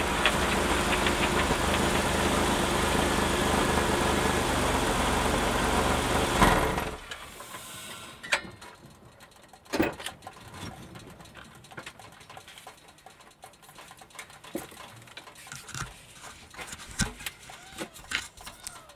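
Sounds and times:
car engine idling: 0.0 - 7.2.

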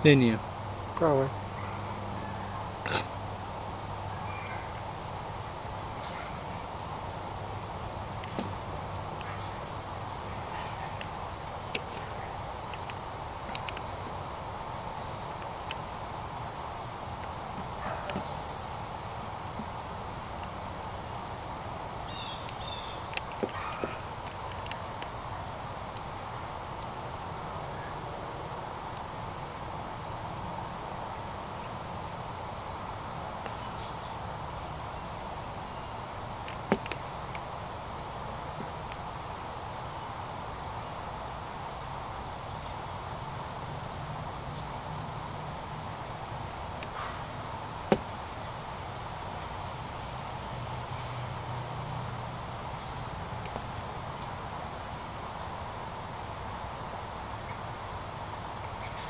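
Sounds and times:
insect high-pitched trill: 0.0 - 59.0
short insect chirp: 0.2 - 38.2, 55.2 - 59.0.

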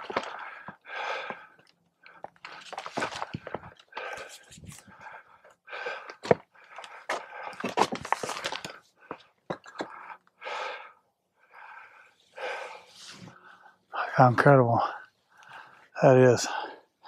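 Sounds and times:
footsteps on loose rock: 0.0 - 1.4, 2.2 - 4.9, 6.1 - 9.9
man panting: 0.0 - 17.0.

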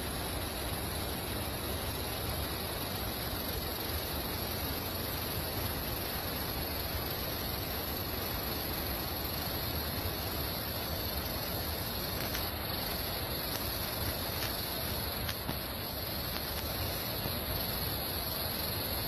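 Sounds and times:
steady rushing noise: 0.0 - 19.0
faint ticks: 12.0 - 17.4.

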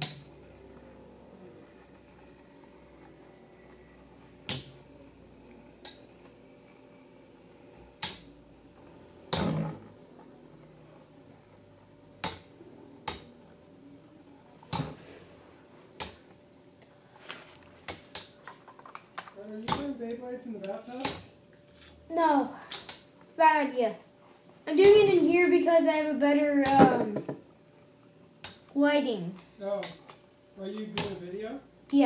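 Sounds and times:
whirr of spinning tops: 0.0 - 10.9.

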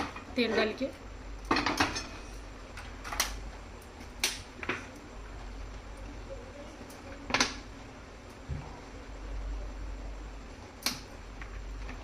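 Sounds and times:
low steady hum: 0.0 - 12.0.

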